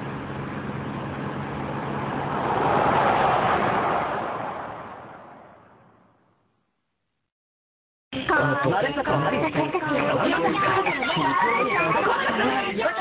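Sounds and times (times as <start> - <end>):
rushing wind-like whoosh: 1.8 - 6.0.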